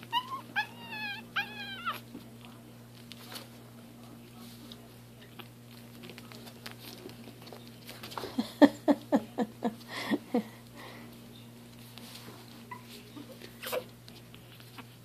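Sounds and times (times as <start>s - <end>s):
puppy yipping: 0.0s - 2.0s
puppies scuffling: 0.0s - 9.9s, 10.6s - 15.0s.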